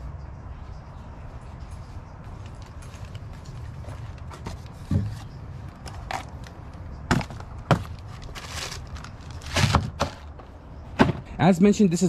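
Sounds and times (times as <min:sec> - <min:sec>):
plastic bag rustle: 0:07.8 - 0:10.0.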